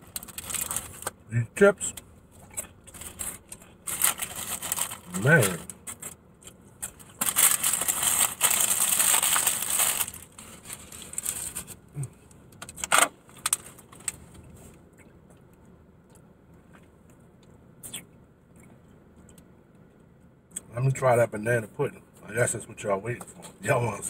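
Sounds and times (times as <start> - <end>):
potato chips crunching: 2.5 - 11.7.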